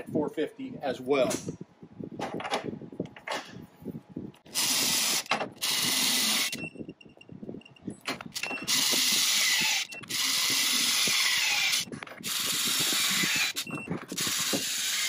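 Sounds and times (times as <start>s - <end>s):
torque wrench motor whirring: 4.5s - 6.6s, 8.4s - 15.0s.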